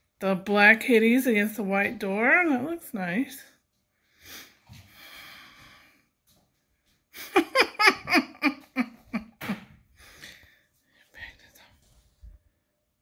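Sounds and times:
woman laughing: 7.2 - 9.7.

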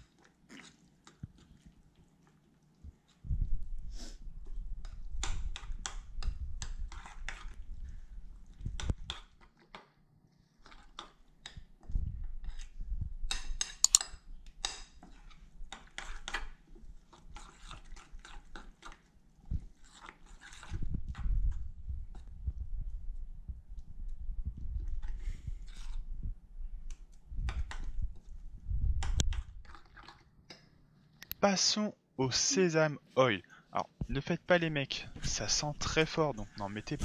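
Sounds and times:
spoon stirring thick batter: 0.0 - 31.2, 32.6 - 37.0
spoon clicking against glass bowl: 13.6 - 14.2.

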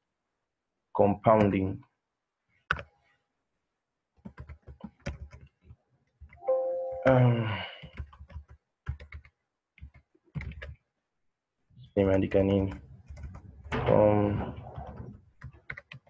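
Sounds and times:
keyboard typing: 4.2 - 10.8, 12.0 - 13.5, 14.7 - 16.0.

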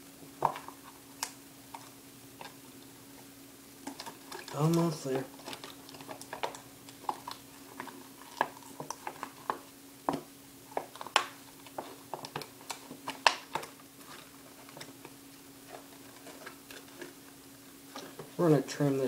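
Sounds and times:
plastic packaging crackling: 3.8 - 18.5.

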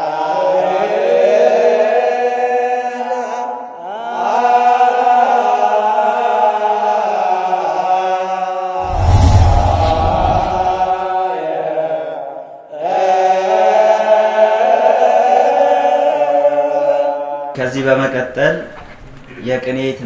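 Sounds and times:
liturgical chant voices: 0.0 - 17.7
deep boom: 8.8 - 11.1.

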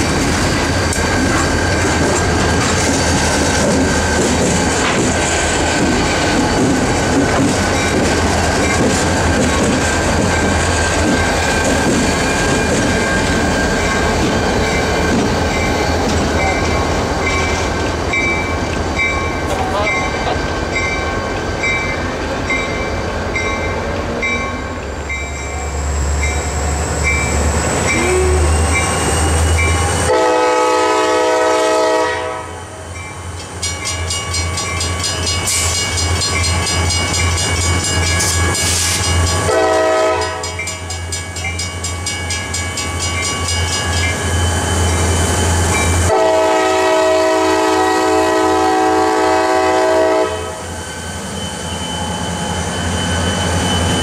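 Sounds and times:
crossing bell ringing: 6.3 - 9.2, 10.0 - 30.7, 32.5 - 46.7, 50.3 - 54.0
train horn blasts: 27.9 - 28.6, 29.7 - 32.8, 39.4 - 40.7, 46.0 - 50.6.

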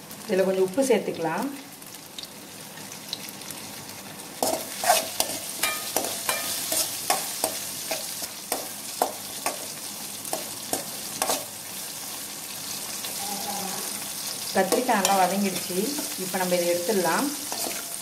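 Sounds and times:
vegetables sizzling in oil: 0.0 - 18.0
spoon scraping and clinking pan: 4.4 - 8.0, 17.5 - 18.0.

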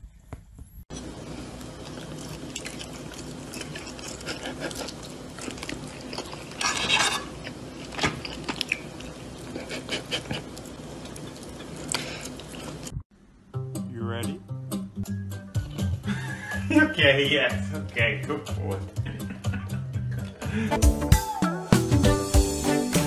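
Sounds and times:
room hum: 0.0 - 20.8
chewing: 0.9 - 12.9
metal fork scraping on a plate: 6.6 - 7.4.

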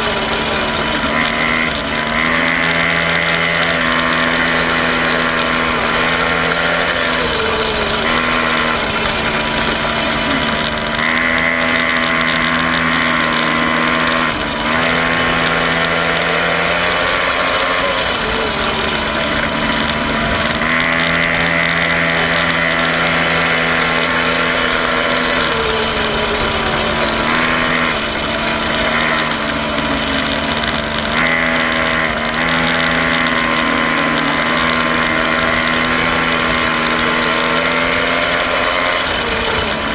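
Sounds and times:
quad bike engine running: 0.0 - 39.9.

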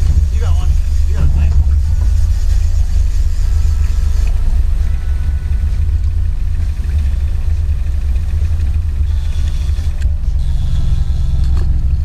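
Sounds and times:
outboard motor idling: 0.0 - 12.0.

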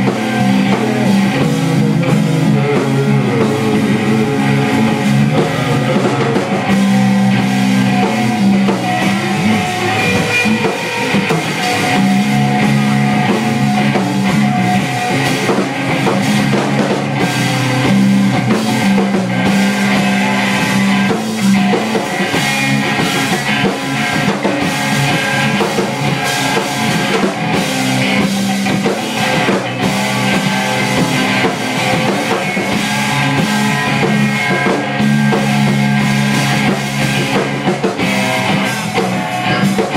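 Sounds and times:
drum kit: 0.0 - 39.9
electric bass guitar: 0.0 - 39.9
electric guitar: 0.0 - 39.9.

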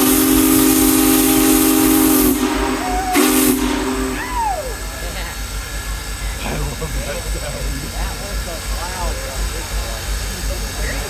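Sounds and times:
steam locomotive chime whistle: 0.0 - 5.0
steam hissing: 0.0 - 11.0.

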